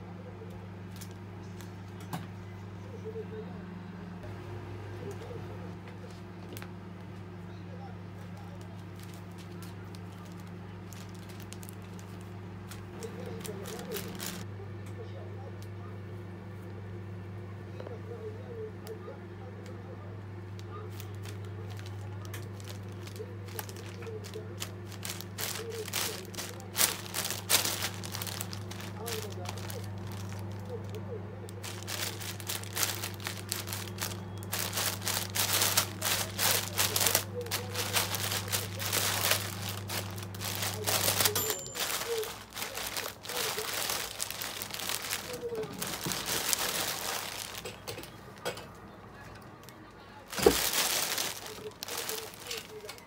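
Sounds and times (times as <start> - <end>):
plastic bag crinkling: 0.9 - 1.7, 8.3 - 14.5, 20.5 - 48.4, 49.6 - 53.0.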